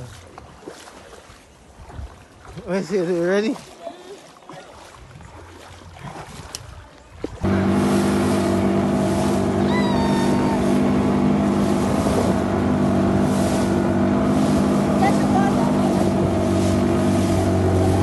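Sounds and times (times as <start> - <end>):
water rushing along hull: 0.0 - 18.0
outboard motor drone: 7.3 - 18.0.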